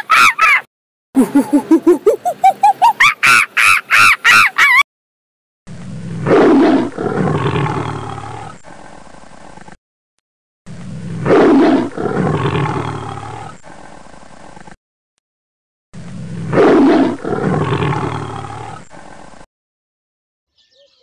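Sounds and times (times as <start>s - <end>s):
monkey high-pitched calls: 0.0s - 4.8s
big cat roaring and growling: 5.7s - 9.8s, 10.7s - 14.7s, 16.0s - 19.4s.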